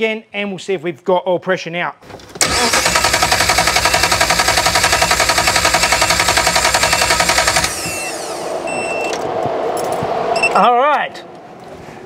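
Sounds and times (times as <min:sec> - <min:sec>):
starter motor cranking engine: 0:02.4 - 0:08.4.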